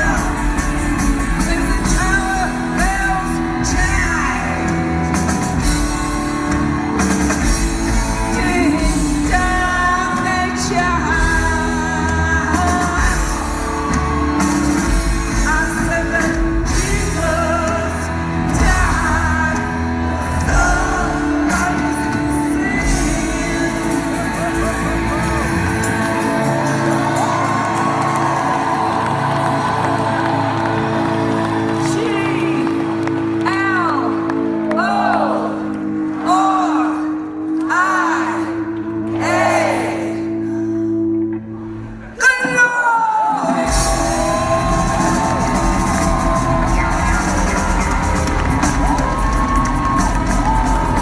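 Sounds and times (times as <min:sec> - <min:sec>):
drums: 0:00.0 - 0:34.9, 0:39.1 - 0:51.0
bass guitar: 0:00.0 - 0:42.2, 0:43.4 - 0:51.0
person singing: 0:07.2 - 0:29.2
electric guitar: 0:43.4 - 0:51.0.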